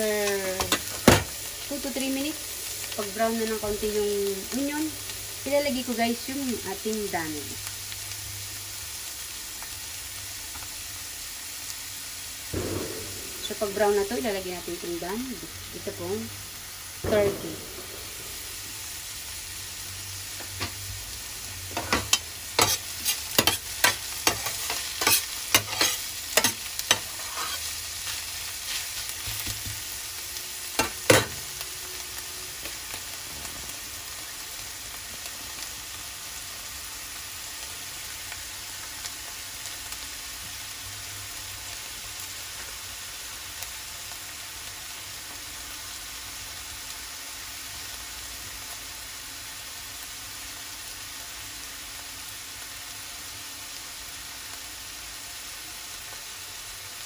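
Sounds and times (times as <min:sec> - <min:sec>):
onion sizzling in oil: 0:00.0 - 0:57.0
metal spoon scraping pan: 0:21.7 - 0:27.8.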